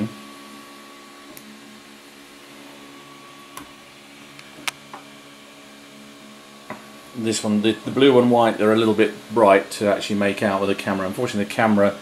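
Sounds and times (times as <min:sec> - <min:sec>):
printer hum: 0:00.0 - 0:12.0.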